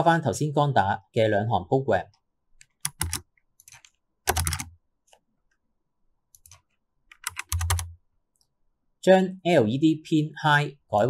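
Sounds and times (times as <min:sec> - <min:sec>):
computer keyboard clicks: 0:02.6 - 0:04.7, 0:06.4 - 0:07.9.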